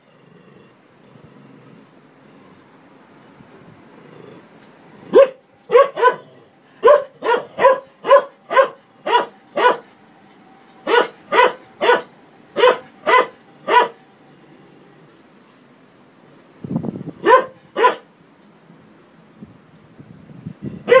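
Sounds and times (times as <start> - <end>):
large dog barking: 5.1 - 9.9, 10.8 - 14.0, 17.2 - 18.1.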